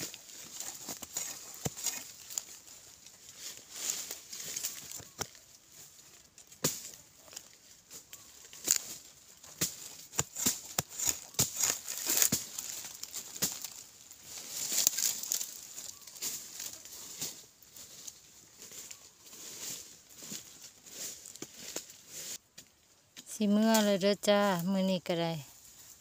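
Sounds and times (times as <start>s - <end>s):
digging tool chopping dry soil: 0.0s - 2.6s, 6.5s - 7.0s, 8.6s - 13.9s
loose earth pattering: 0.0s - 24.6s.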